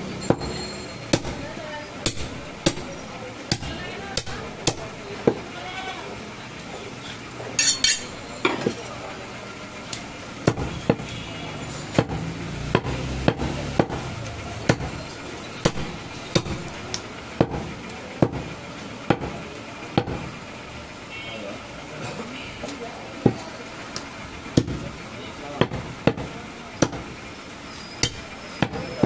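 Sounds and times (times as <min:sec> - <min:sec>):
cleaver chopping meat on wood: 0:01.1 - 0:02.9, 0:03.5 - 0:05.4, 0:10.4 - 0:11.1, 0:12.0 - 0:15.0, 0:15.6 - 0:18.5, 0:19.1 - 0:19.4, 0:20.0 - 0:20.3, 0:24.6 - 0:24.8, 0:25.6 - 0:27.1, 0:28.0 - 0:28.9.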